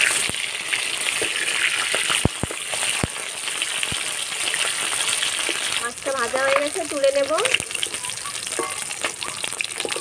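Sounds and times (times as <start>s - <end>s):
fish sizzling in oil: 0.0s - 10.0s.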